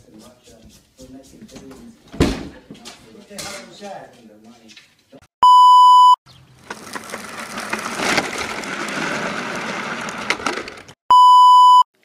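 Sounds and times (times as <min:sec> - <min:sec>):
loud steady beep: 0:05.4 - 0:06.2, 0:11.1 - 0:11.9
plastic tricycle wheels on asphalt: 0:06.3 - 0:11.0.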